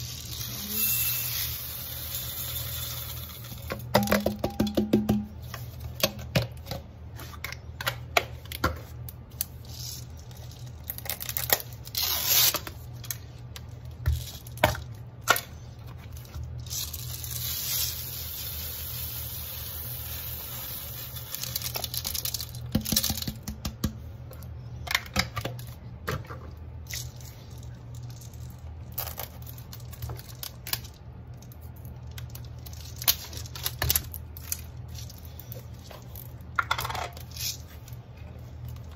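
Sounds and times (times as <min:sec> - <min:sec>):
beads pattering against glass: 0:20.3 - 0:23.3.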